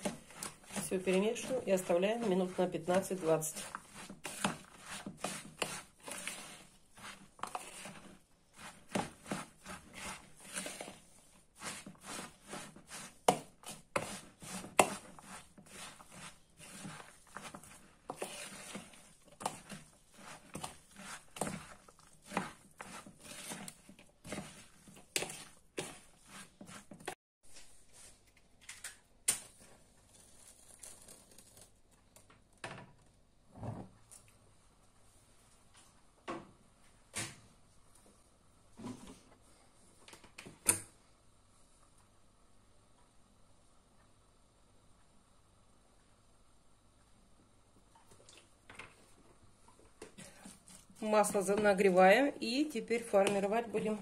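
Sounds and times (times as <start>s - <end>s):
hand mixing wet food in bowl: 0.0s - 27.2s, 47.8s - 54.0s.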